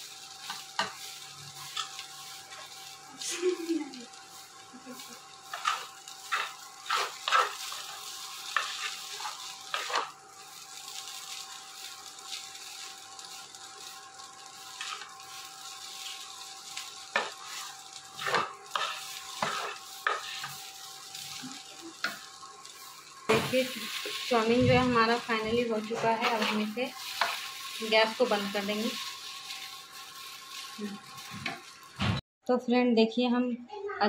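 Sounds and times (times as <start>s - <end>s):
noodles sizzling in a pan: 0.0s - 32.2s
spatula scraping and knocking pan: 0.4s - 2.8s, 5.4s - 10.2s, 17.0s - 20.6s, 23.3s - 27.9s.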